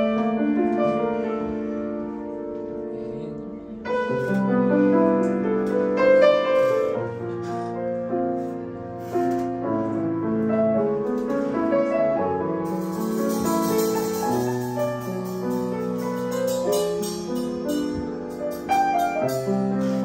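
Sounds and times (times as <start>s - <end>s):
piano chords: 0.0s - 20.0s
small live band playing: 11.1s - 20.0s.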